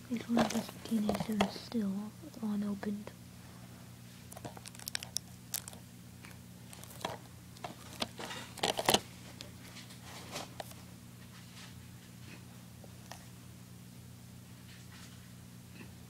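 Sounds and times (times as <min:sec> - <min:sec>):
plastic shrink-wrap crinkling: 0:04.3 - 0:05.8, 0:06.6 - 0:10.8.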